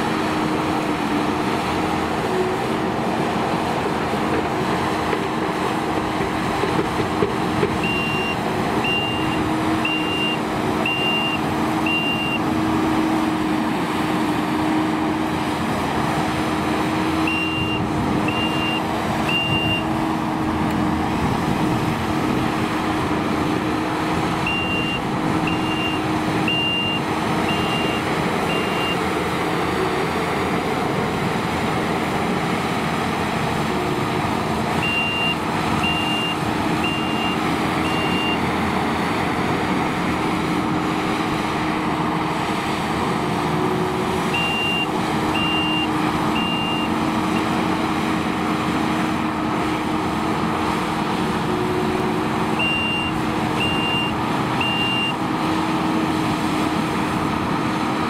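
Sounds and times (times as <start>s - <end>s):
diesel engine running: 0.0s - 58.0s
backup alarm beeping: 7.8s - 12.4s, 17.3s - 19.9s, 24.5s - 29.0s, 34.8s - 38.4s, 44.4s - 47.5s, 52.6s - 55.2s.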